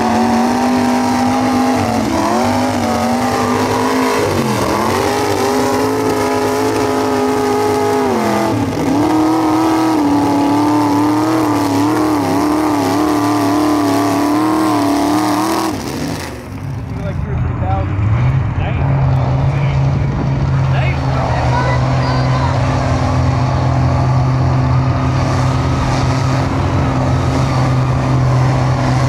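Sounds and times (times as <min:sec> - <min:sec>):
truck engine at high revs: 0:00.0 - 0:29.0.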